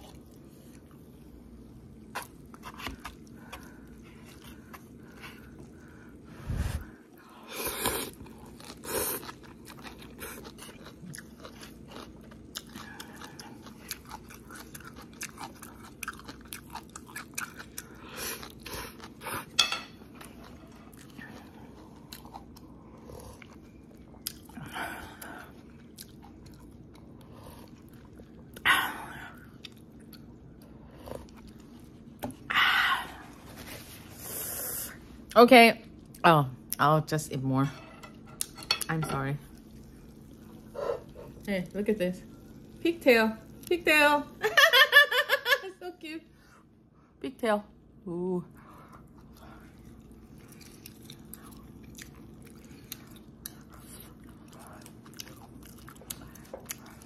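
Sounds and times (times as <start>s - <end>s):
wet chewing: 2.0s - 6.0s, 7.6s - 28.6s, 48.7s - 57.0s.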